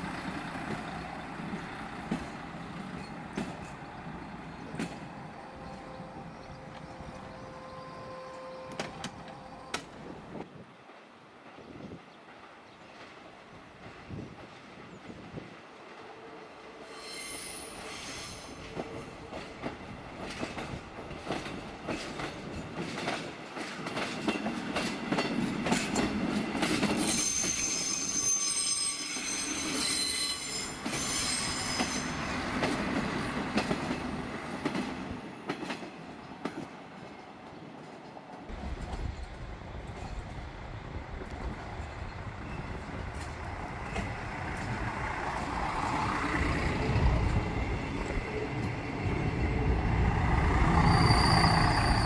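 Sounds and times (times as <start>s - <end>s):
train wheels clicking over rail joints: 0.0s - 5.9s, 17.8s - 28.0s, 30.5s - 49.2s
railbus rolling: 0.0s - 52.0s
wheels squealing high-pitched: 16.8s - 18.7s, 27.0s - 32.4s, 49.5s - 52.0s.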